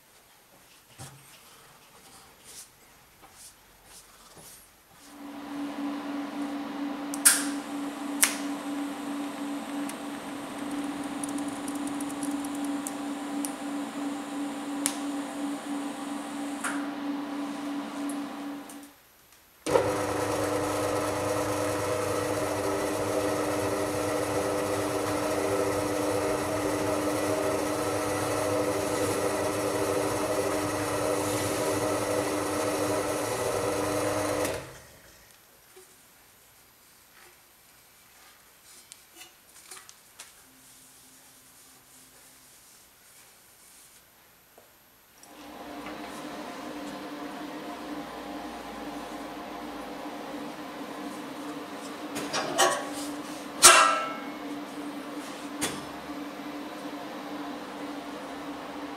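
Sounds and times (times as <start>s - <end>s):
pillar drill motor hum: 7.6s - 16.6s, 19.7s - 34.9s
sharp clicks: 10.6s - 13.0s.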